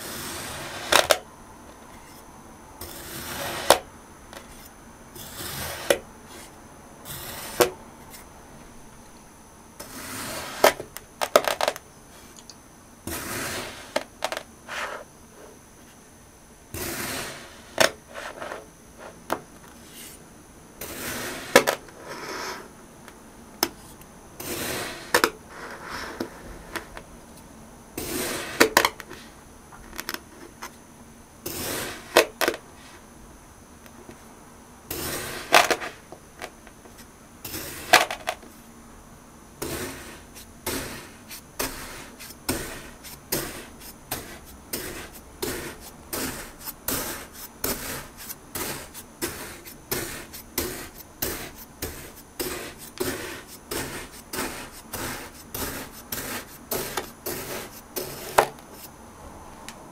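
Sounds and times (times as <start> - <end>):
knife crunching through kinetic sand: 0.0 - 1.2, 2.8 - 8.3, 9.8 - 11.8, 13.1 - 15.0, 16.7 - 19.1, 20.8 - 22.7, 23.7 - 26.6, 28.0 - 29.3, 31.5 - 32.6, 34.9 - 36.1, 37.5 - 38.4, 39.6 - 58.9.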